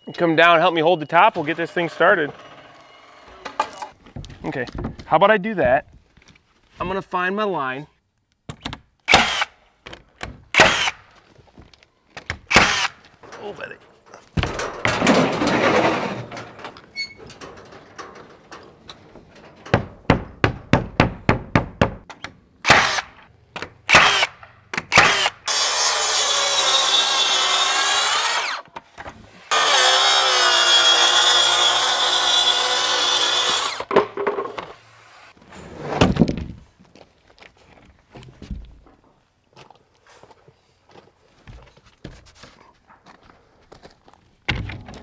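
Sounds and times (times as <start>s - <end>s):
track saw cutting panel: 1.3s - 3.9s, 25.0s - 28.6s, 29.5s - 33.9s
sharp knocks: 19.7s - 22.2s.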